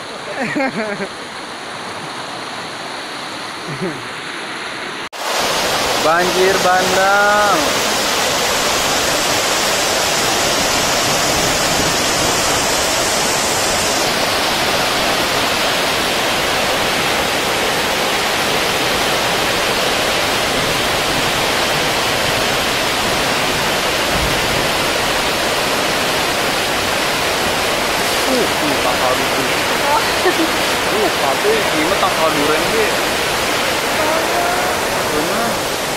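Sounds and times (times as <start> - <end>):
floodwater rushing: 0.0 - 35.9
high hiss: 5.2 - 15.8, 27.7 - 35.9.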